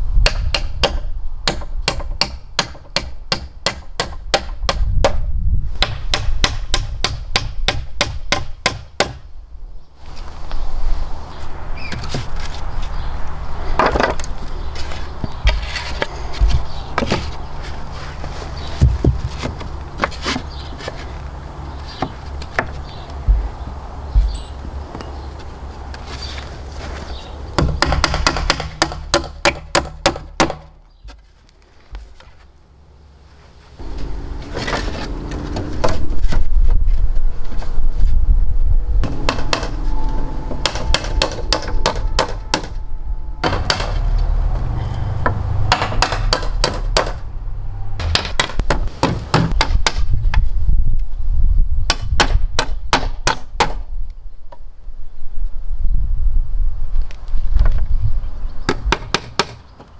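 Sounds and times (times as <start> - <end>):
hammering: 27.6 - 30.7, 39.0 - 39.8, 40.5 - 42.8, 43.4 - 44.2, 45.2 - 47.3, 48.0 - 50.0.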